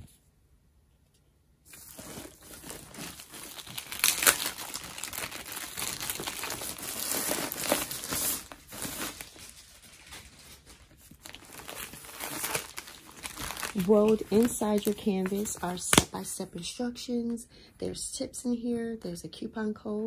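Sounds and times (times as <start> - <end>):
plastic wrap crinkling: 1.7 - 16.2.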